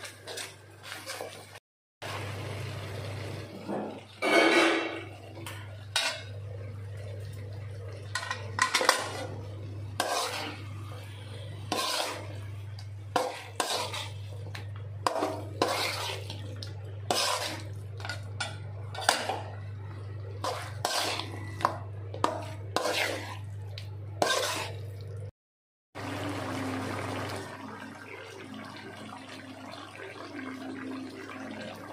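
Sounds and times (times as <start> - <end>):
metal spatula scraping metal pan: 8.2 - 12.5, 13.1 - 16.4, 17.1 - 19.4, 20.4 - 23.5, 24.2 - 24.8.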